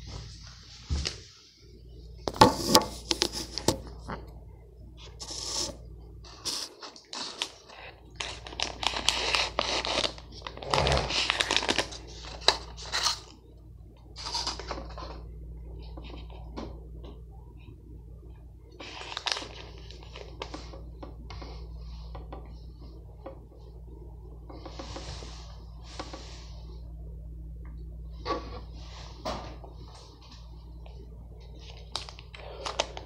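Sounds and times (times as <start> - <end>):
plastic snack bag crinkling: 6.3 - 13.4, 14.2 - 15.2, 18.8 - 20.7, 31.6 - 33.0.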